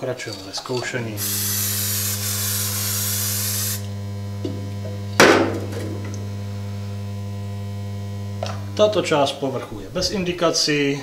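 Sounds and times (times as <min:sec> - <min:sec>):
low electrical hum: 0:00.0 - 0:11.0
aerosol spray hissing: 0:01.2 - 0:03.9
loud ringing knock: 0:05.2 - 0:06.1.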